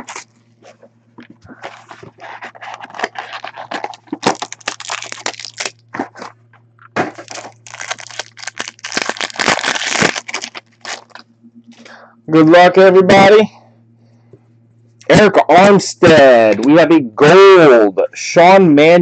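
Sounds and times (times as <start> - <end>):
foil wrappers crinkling and tearing: 0.0 - 11.2.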